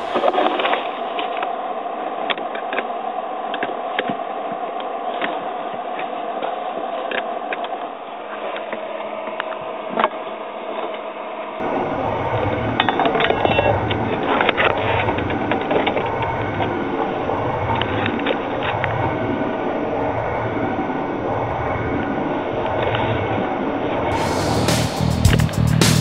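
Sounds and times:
low pulsing rumble: 0:11.6 - 0:26.0.

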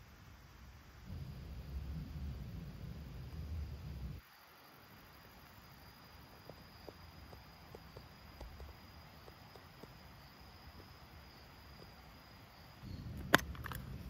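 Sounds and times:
insect trilling: 0:01.0 - 0:14.0
handling noise: 0:12.9 - 0:14.0.

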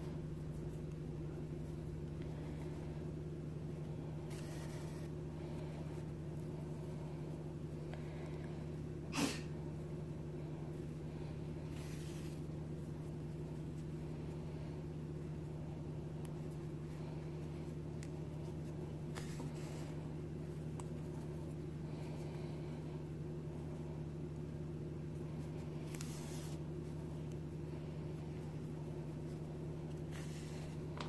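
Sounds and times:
yarn rustling through fabric: 0:00.0 - 0:07.9, 0:09.8 - 0:22.3
steady low hum: 0:00.0 - 0:31.0.

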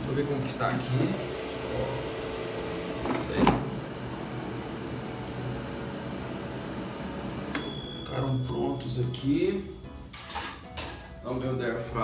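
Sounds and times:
air fryer humming: 0:00.0 - 0:09.0
air fryer basket clunk: 0:03.0 - 0:03.8.

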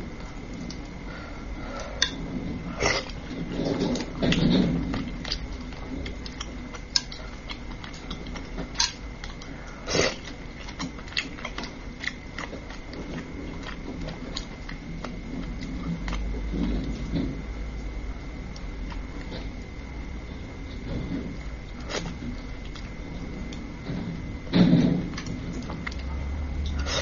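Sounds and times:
wet chewing and lip smacks: 0:05.0 - 0:17.2, 0:20.7 - 0:23.7, 0:25.1 - 0:27.0.

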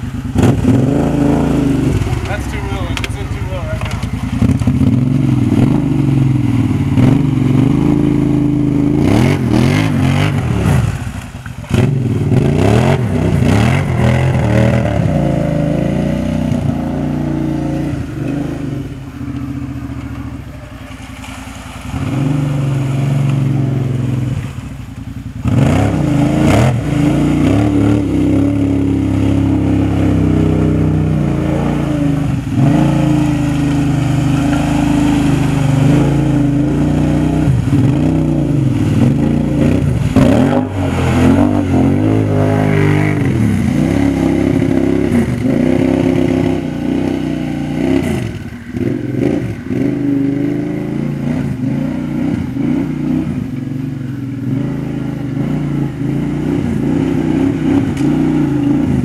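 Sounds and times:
quad engine revving: 0:00.0 - 0:59.0.

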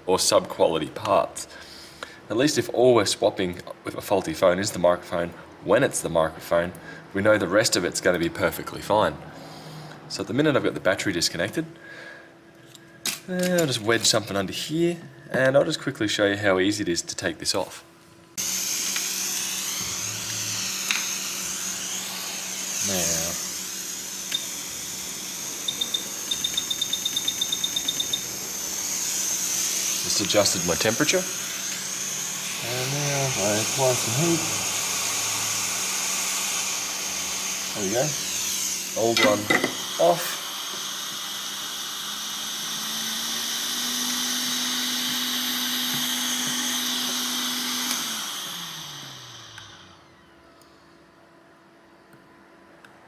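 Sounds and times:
blower fan humming: 0:00.0 - 0:53.0
hot air station airflow hissing: 0:09.2 - 0:10.1, 0:18.4 - 0:49.8.

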